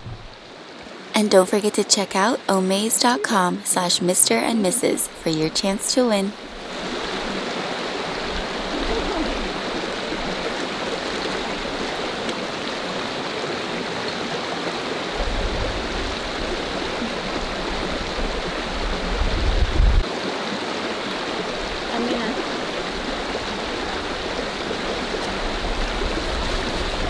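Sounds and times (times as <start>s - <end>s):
river flowing over gravel: 5.6s - 27.0s.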